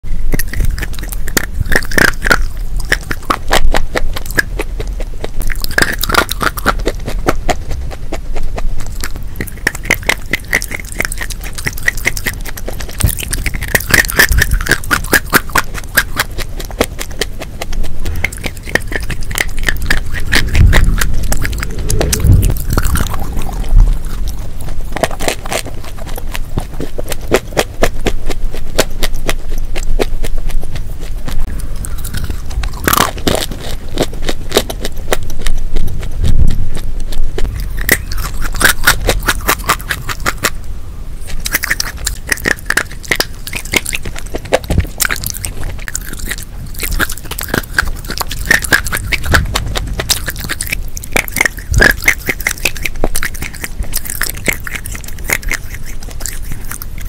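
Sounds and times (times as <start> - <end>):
crunching chalk and clay: 0.1 - 40.6, 41.2 - 57.0.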